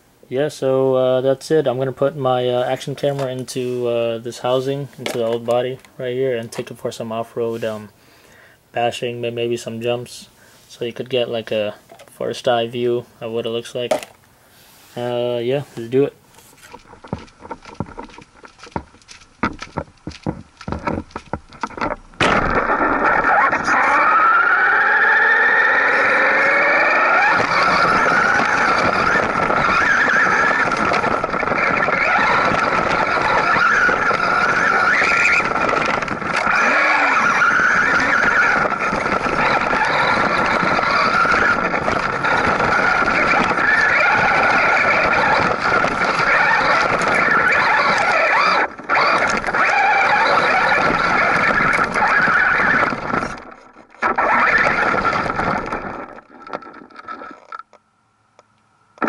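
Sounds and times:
tyres churning over gravel: 15.0s - 57.5s
electric motor whining: 21.7s - 57.6s.

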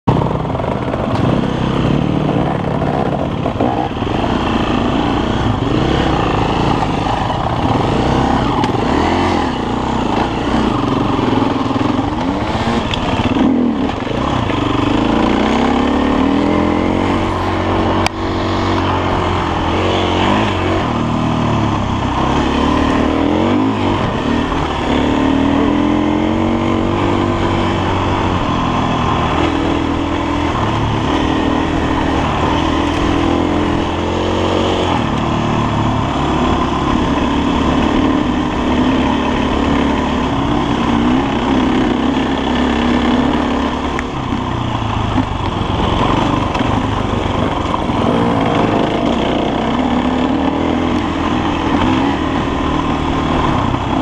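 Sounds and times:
dirt bike engine revving: 0.1s - 54.0s.

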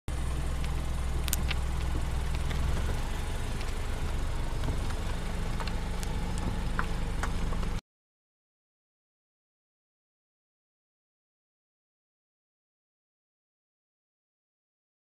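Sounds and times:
car engine drone inside cabin: 0.1s - 7.8s.

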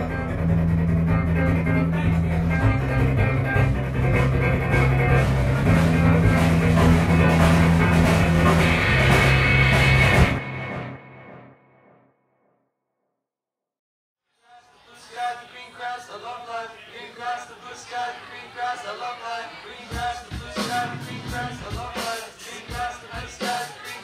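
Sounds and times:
rock band playing: 0.0s - 11.5s, 20.0s - 22.2s
long held bass notes: 0.0s - 11.6s.

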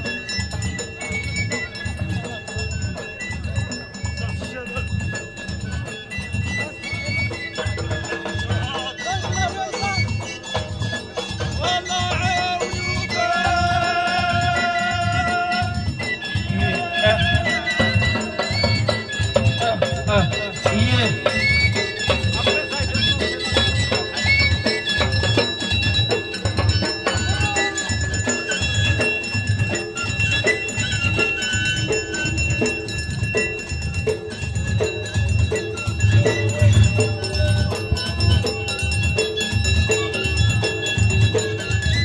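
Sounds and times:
metallic ringing percussion: 0.0s - 42.0s
men chanting: 11.5s - 21.5s.

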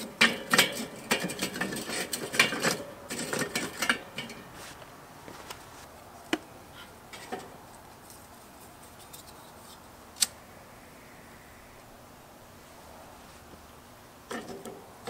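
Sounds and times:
charcoal briquettes knocking: 0.0s - 4.5s.

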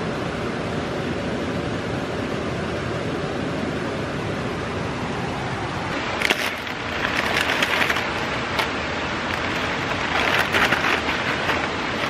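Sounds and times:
rushing background noise: 0.0s - 12.0s
plastic packaging crinkling: 6.2s - 8.7s, 9.3s - 12.0s.

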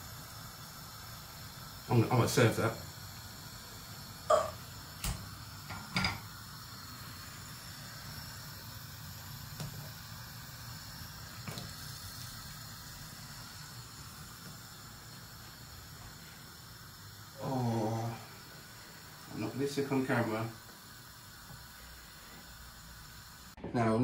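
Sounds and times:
water boiling with bubbling hiss: 0.0s - 23.6s.

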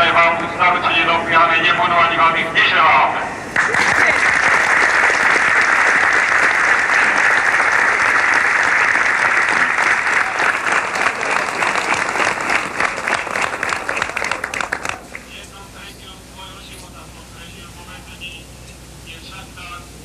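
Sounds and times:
crowd applauding: 3.6s - 15.3s.

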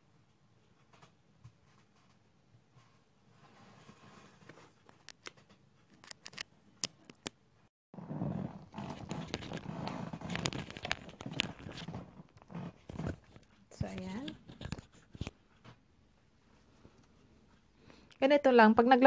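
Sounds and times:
microphone rubbing against clothing: 8.0s - 15.4s.

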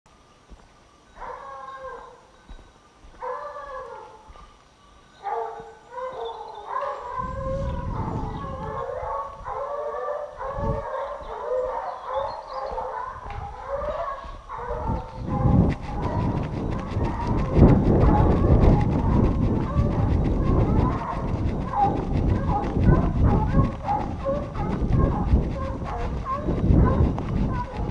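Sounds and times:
hounds baying: 1.2s - 2.3s, 3.2s - 4.5s, 5.2s - 27.9s
microphone handling rumble: 14.9s - 27.9s.

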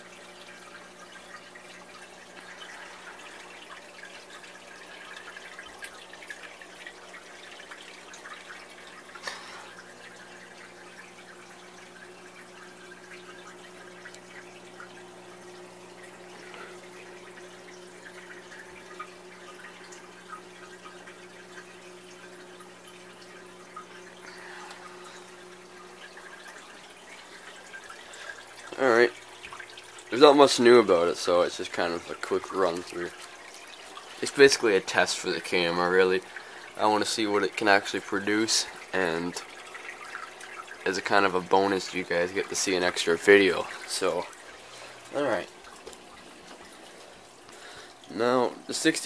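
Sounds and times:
water trickling and dripping: 0.0s - 49.0s
tank equipment humming: 0.1s - 39.2s.

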